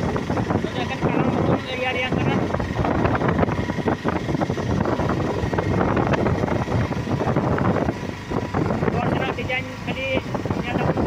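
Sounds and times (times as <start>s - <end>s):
road and wind noise in vehicle: 0.0s - 11.0s.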